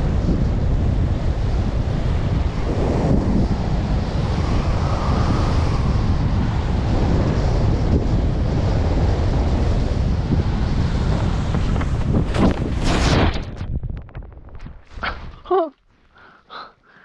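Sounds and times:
wind buffeting microphone: 0.0 - 15.5.

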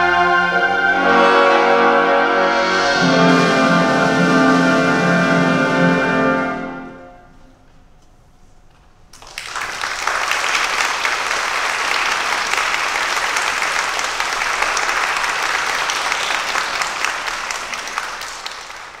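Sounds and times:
audience applauding: 9.1 - 19.0.

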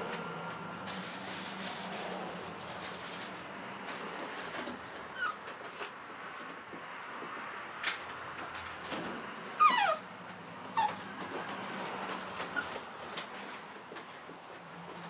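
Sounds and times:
puppy whimpering: 5.0 - 5.4, 9.0 - 11.1, 12.4 - 12.9.

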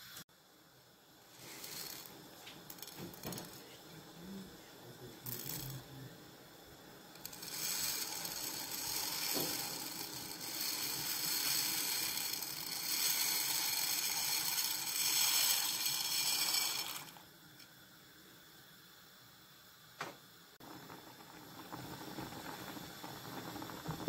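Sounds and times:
dry pasta clattering into pot: 2.7 - 3.6, 7.2 - 17.1.

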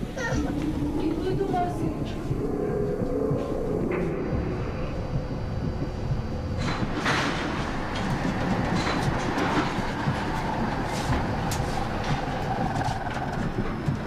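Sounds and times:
heavy machinery rumbling: 0.0 - 14.0
rattling and knocking: 6.4 - 14.0.

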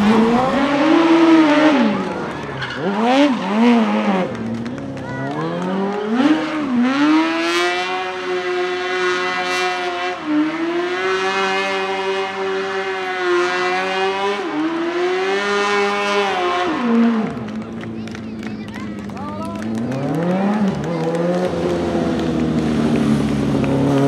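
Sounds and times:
motorcycle engine revving high: 0.0 - 4.6.

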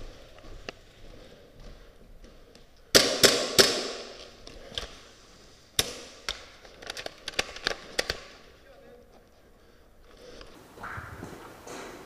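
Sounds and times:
airsoft gun shots: 2.9 - 4.1.

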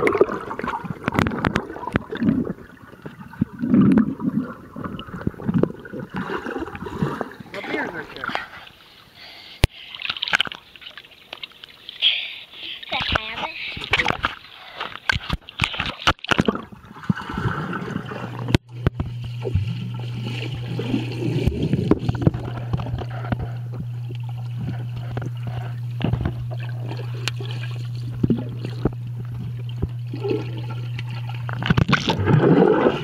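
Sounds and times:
water sloshing and splashing: 0.0 - 33.0
muffled underwater hum: 12.6 - 33.0
underwater clicks: 21.4 - 30.2.

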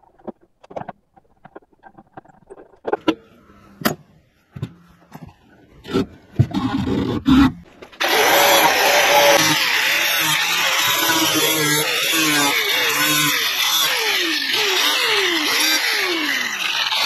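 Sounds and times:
knocks and clatters: 0.0 - 3.2
angle grinder grinding metal: 8.0 - 17.0.

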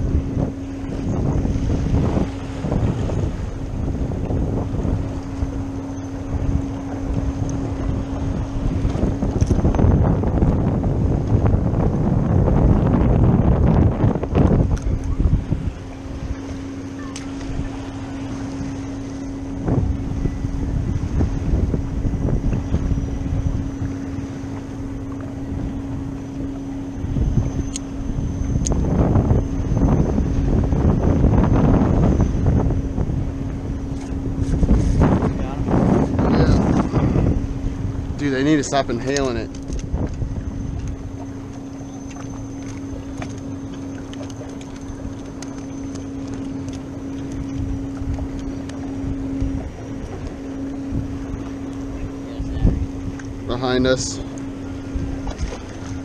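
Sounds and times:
boat motor humming: 0.0 - 56.0
hull knocking on waves: 0.0 - 56.0
wind buffeting microphone: 0.0 - 56.0
small ticks: 27.6 - 27.9, 40.8 - 48.9.

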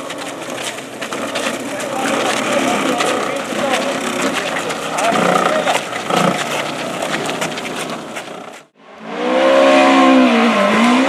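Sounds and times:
scuffling with clicks and knocks: 0.0 - 8.7
rally car engine at high revs: 3.7 - 11.0.

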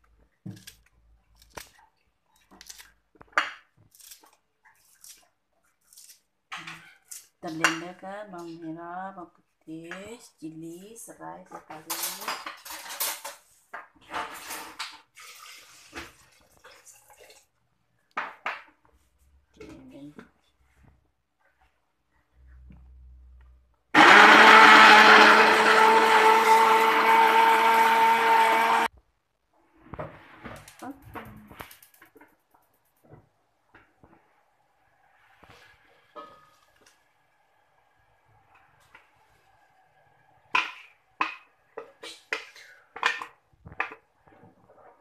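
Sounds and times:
blender motor whine: 23.9 - 28.9.

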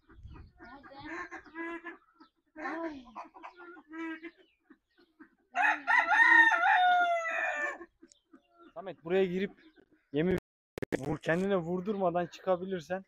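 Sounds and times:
fowl clucking: 0.0 - 10.4
rooster crowing: 5.6 - 7.8.

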